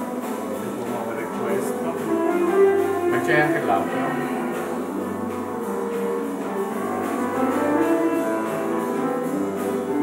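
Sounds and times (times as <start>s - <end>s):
instrumental music held notes: 0.0s - 10.0s.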